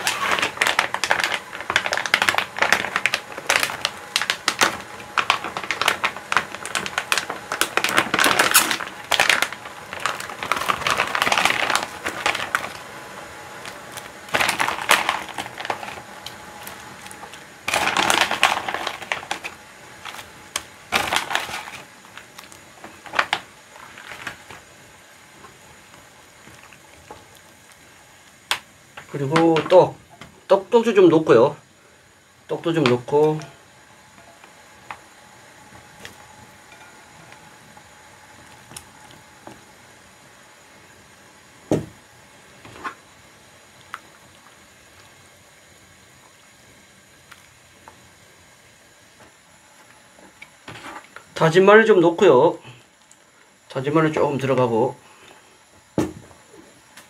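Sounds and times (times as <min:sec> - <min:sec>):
plastic bag crinkling: 0:00.0 - 0:29.9.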